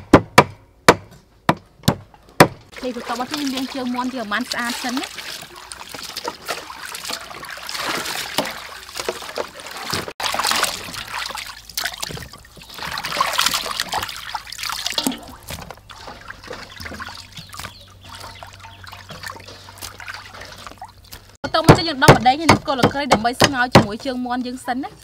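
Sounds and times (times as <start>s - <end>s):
water splashing in steel basin: 2.7s - 23.7s.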